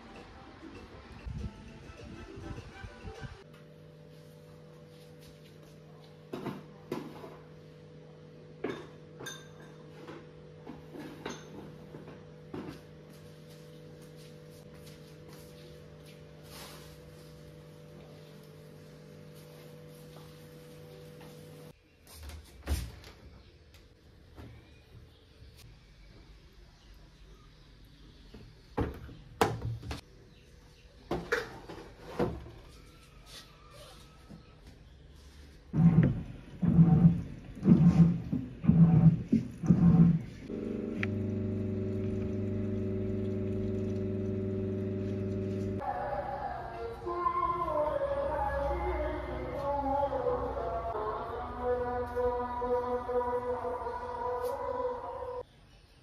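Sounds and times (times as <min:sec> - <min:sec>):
steady low hum: 0:35.5 - 0:51.6.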